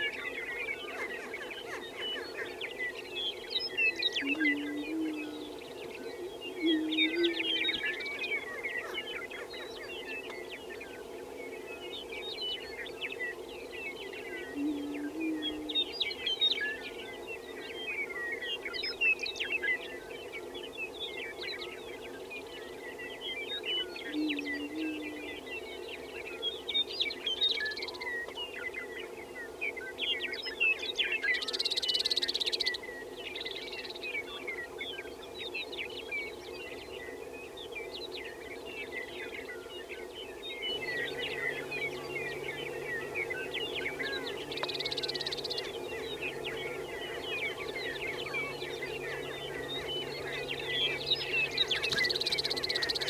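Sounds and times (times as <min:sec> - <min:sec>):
low booming bird chorus: 0:20.2 - 0:53.0
high cackling bird calls: 0:40.7 - 0:53.0.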